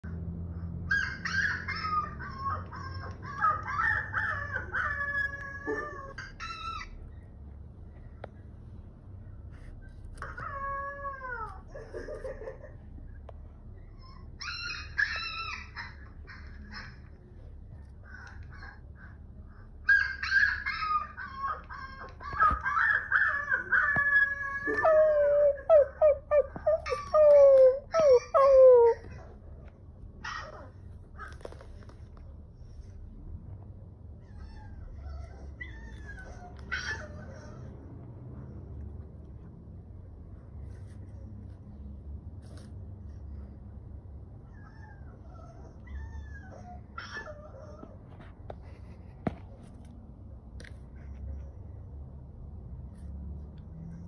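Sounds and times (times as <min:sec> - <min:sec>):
puppies howling through laptop speaker: 0:00.9 - 0:07.0, 0:10.2 - 0:12.4, 0:14.0 - 0:17.1, 0:19.8 - 0:29.4, 0:30.2 - 0:32.0, 0:34.2 - 0:37.7, 0:44.4 - 0:48.2.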